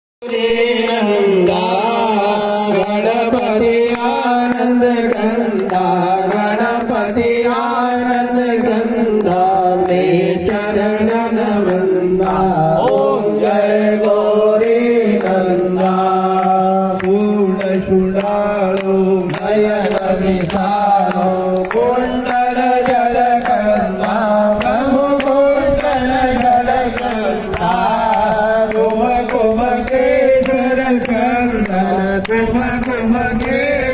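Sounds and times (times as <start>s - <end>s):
person singing devotional song: 0.2s - 33.9s
sharp percussion strokes: 27.0s - 28.2s.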